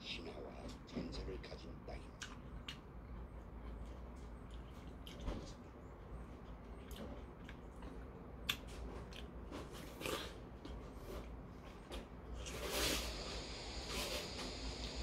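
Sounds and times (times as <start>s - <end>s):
chewing watermelon: 1.4s - 12.8s.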